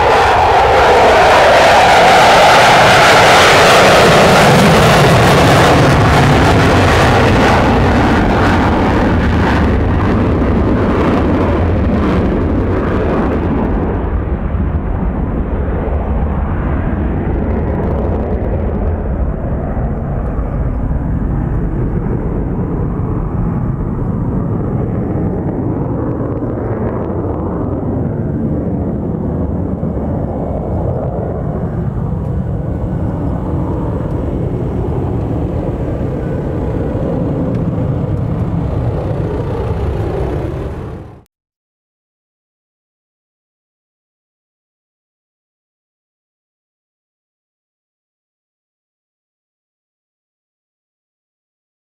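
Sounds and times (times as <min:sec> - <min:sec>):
jet engine roaring: 0:00.0 - 0:41.3
low jet rumble: 0:00.0 - 0:41.3.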